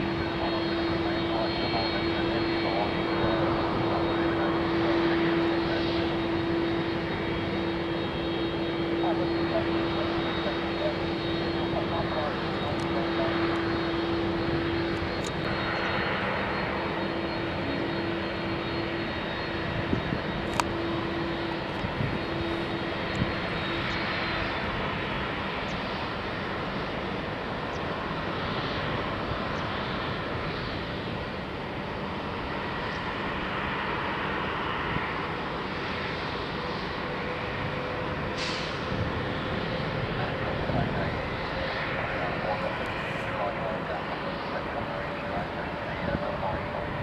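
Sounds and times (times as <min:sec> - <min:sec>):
jet engines running: 0:00.0 - 0:47.0.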